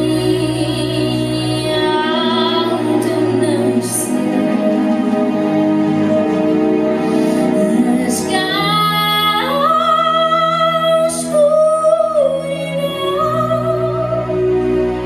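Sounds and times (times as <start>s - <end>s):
woman singing a slow ballad: 0.0s - 4.6s, 7.6s - 14.3s
instrumental backing music: 0.0s - 15.0s.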